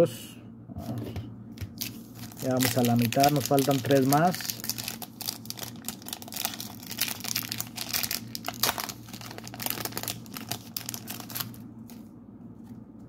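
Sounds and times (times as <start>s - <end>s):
foil wrapper crinkling and tearing: 1.7s - 12.0s.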